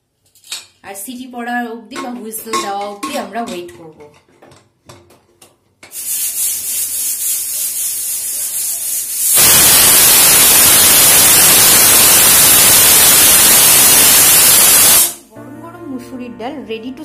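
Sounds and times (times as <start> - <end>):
pressure cooker steam hiss: 5.9 - 15.2
pressure cooker whistle: 9.2 - 15.2.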